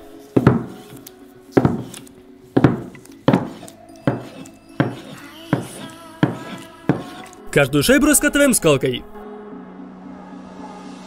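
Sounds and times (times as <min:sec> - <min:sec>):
cleaver chopping on plastic board: 0:00.4 - 0:01.0, 0:01.6 - 0:02.0, 0:02.6 - 0:07.3.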